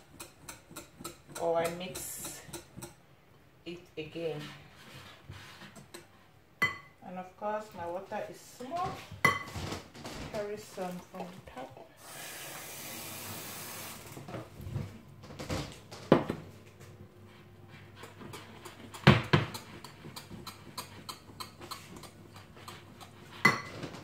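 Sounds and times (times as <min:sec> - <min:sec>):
water running: 0:10.4 - 0:14.4.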